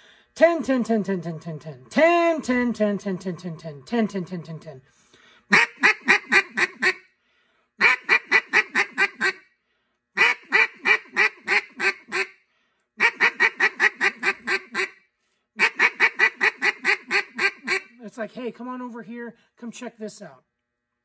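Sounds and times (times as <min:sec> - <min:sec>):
duck call quacks: 0:05.5 - 0:07.0, 0:07.8 - 0:09.4, 0:10.2 - 0:12.4, 0:13.0 - 0:15.0, 0:15.6 - 0:18.0.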